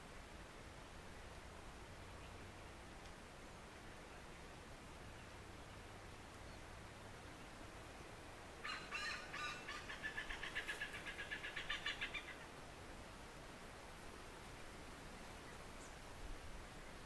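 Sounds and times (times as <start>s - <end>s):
hornbill cackling call: 8.6s - 12.4s.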